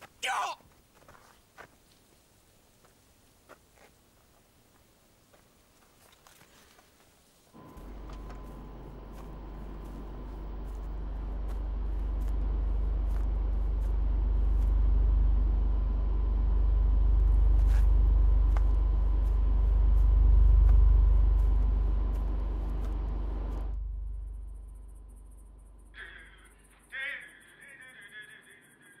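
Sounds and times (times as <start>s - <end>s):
faint steady whine: 0.7s - 29.0s
heavy machinery rumble: 7.6s - 27.1s.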